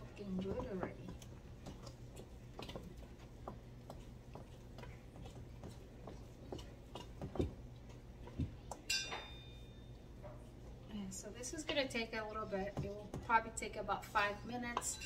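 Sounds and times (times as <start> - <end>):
ringing clink: 8.9 - 9.6.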